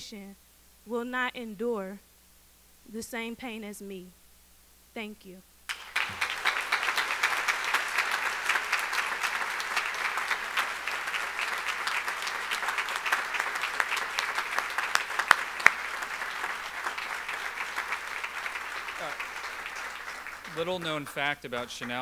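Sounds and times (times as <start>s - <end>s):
audience applauding: 5.7s - 22.0s
sharp single claps: 5.7s - 22.0s.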